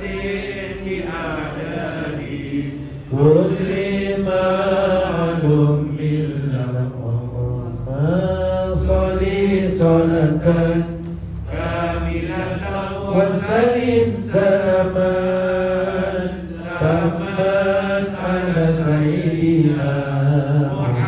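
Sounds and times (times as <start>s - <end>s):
voices chanting together: 0.0s - 21.0s.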